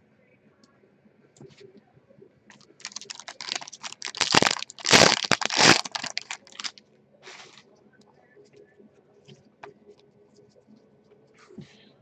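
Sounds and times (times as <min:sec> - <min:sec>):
foil wrapper crinkling: 0:02.6 - 0:07.6.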